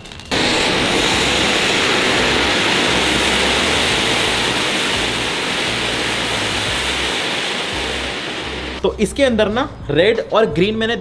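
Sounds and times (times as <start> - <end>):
firework fountain hissing: 0.0 - 8.8.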